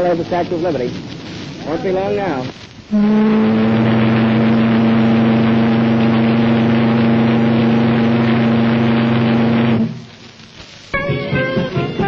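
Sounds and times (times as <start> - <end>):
deep steam whistle blast: 2.9 - 10.1.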